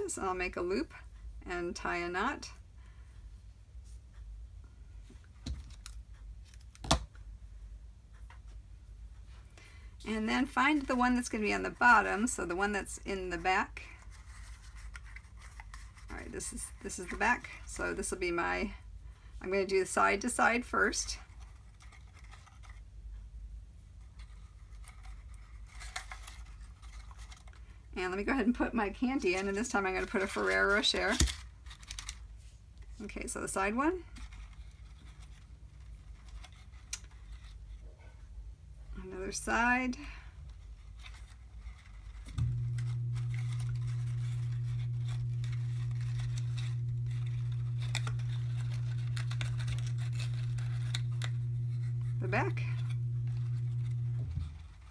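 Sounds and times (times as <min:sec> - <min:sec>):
low steady hum: 0:00.0 - 0:54.9
paper rustling and folding: 0:13.4 - 0:18.0, 0:21.1 - 0:22.9, 0:23.8 - 0:37.9, 0:40.0 - 0:54.9
steady low hum: 0:32.2 - 0:54.9.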